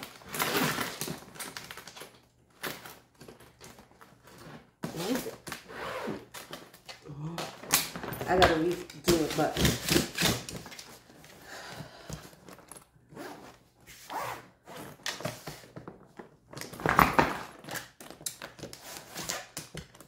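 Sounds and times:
zipper rasps: 0.1s - 1.1s, 4.8s - 6.5s, 13.1s - 15.2s.

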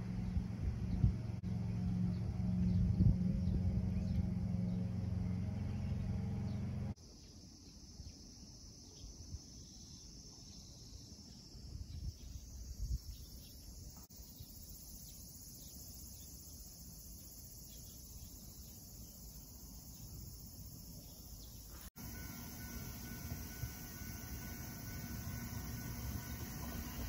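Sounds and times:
machine hum with low tones: 0.0s - 7.0s, 22.0s - 27.0s
faint insect chirring: 7.0s - 27.0s.

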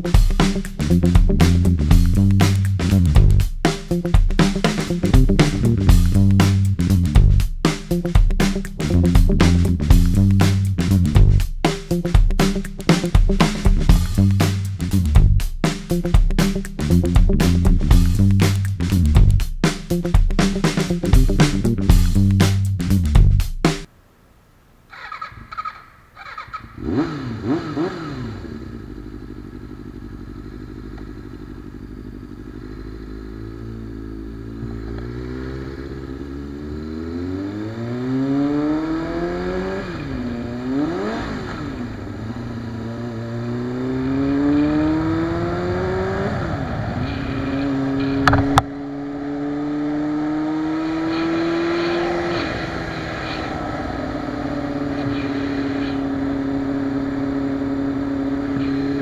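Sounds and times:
motorcycle engine accelerating: 0.0s - 23.8s, 25.0s - 59.0s
sharp click: 48.1s - 48.7s.

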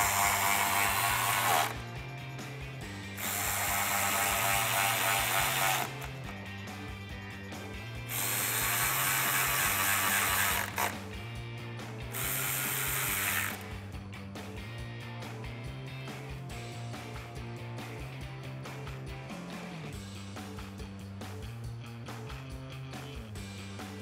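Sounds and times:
electric ratchet spinning: 0.0s - 1.9s, 3.1s - 6.4s, 8.1s - 11.1s, 12.1s - 13.8s.

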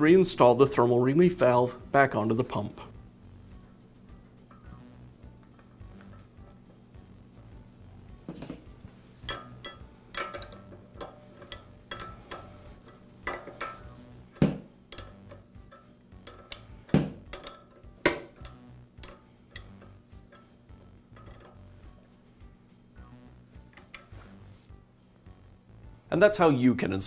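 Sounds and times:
wrench clinking on metal valve: 4.4s - 4.8s, 8.7s - 22.0s.

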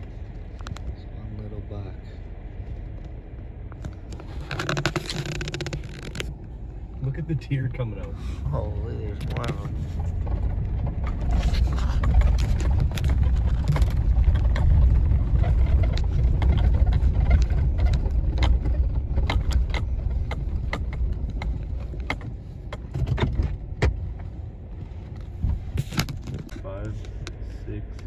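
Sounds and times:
truck engine and tyres rumbling: 0.0s - 28.0s
clicks and knocks of bouncing truck: 9.2s - 24.3s.

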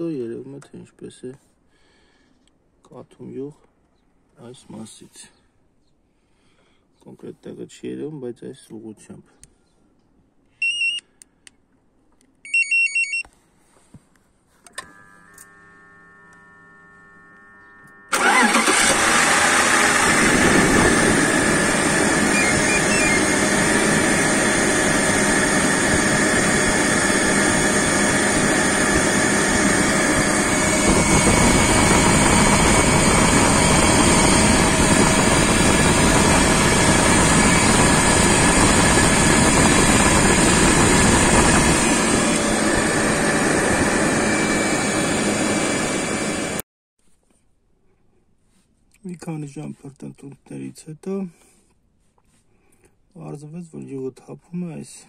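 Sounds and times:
car engine idling: 18.1s - 25.6s.

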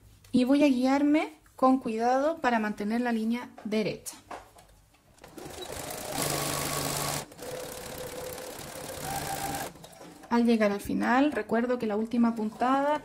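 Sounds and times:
sewing machine stitching: 5.2s - 10.4s.

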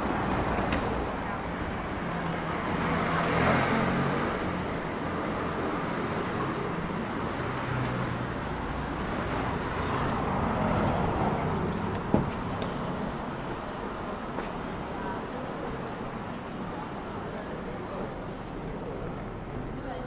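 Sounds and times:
traffic passing: 0.0s - 20.0s
vehicle passing loudly: 2.6s - 11.7s.

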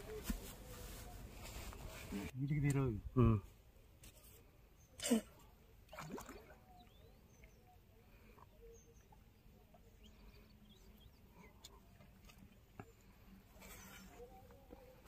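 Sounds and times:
faint bird chirps: 6.5s - 12.0s.

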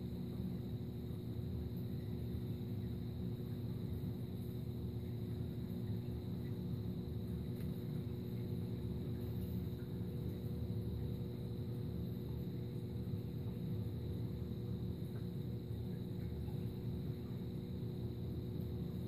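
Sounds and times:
aquarium pumps humming: 0.0s - 19.0s
circulating water: 0.0s - 19.0s.

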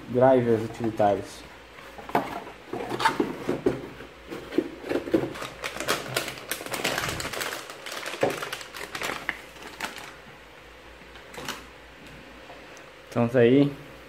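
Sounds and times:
plastic bag crinkling: 5.2s - 10.2s.

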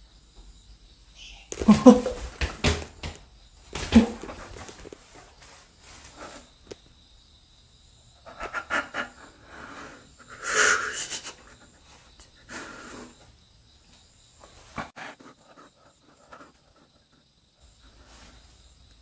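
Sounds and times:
rustles and scuffs: 1.5s - 6.9s
person breathing: 9.0s - 13.3s.

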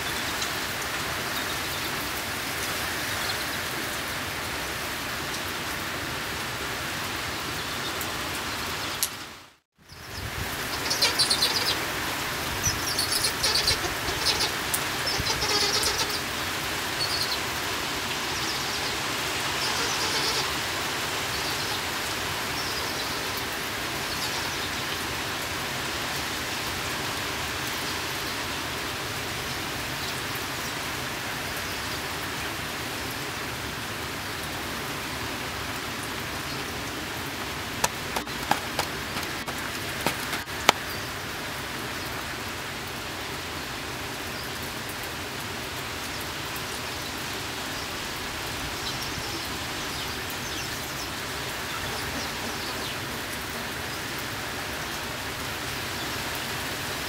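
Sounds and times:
steady rain falling: 0.0s - 57.0s
birds chirping: 9.8s - 25.0s, 37.7s - 41.3s
sharp taps: 37.8s - 40.8s.

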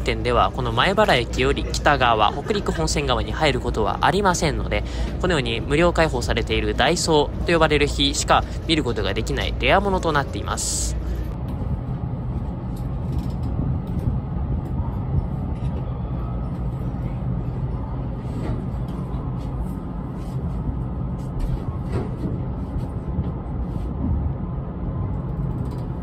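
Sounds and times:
train rumble and hum: 0.0s - 26.0s
faint clicks and creaks: 25.1s - 26.0s.

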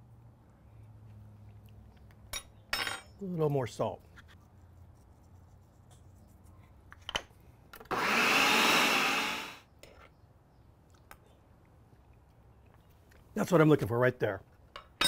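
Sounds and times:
food processor motor: 7.9s - 9.6s.

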